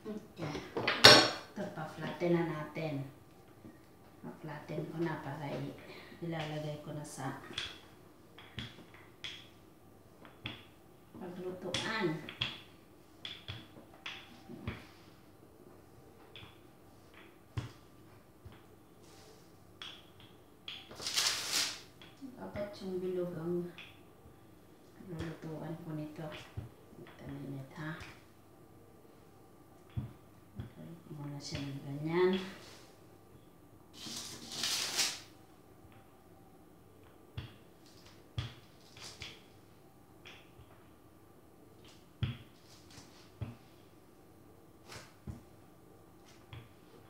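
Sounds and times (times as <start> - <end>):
rustle of pastry dough: 18.9 - 19.7, 20.9 - 22.2, 32.4 - 33.1, 33.9 - 35.4, 42.5 - 44.0
rustling scrape: 21.0 - 21.8.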